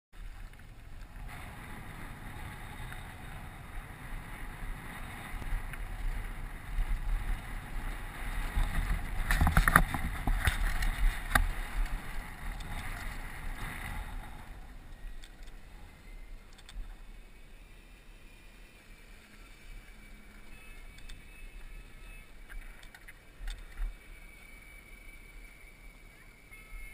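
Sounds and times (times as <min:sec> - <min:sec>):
wind rushing over camera: 0:00.2 - 0:26.1
bike tyres on gravel: 0:00.2 - 0:26.9
bike clattering over bumps: 0:00.5 - 0:15.5.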